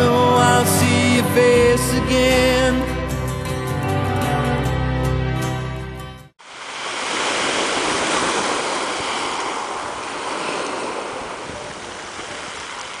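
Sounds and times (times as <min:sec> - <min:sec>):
sea waves washing on shore: 0:06.4 - 0:13.0.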